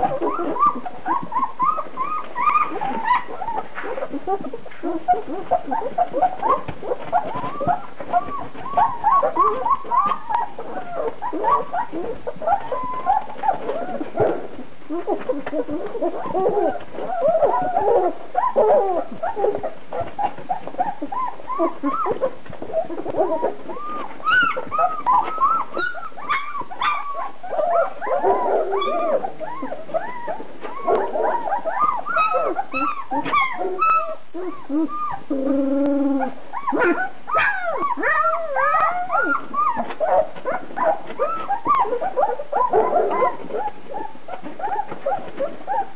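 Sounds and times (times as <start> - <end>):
puppies whimpering and squealing: 0.0 - 45.9
puppy crying low: 0.0 - 45.9.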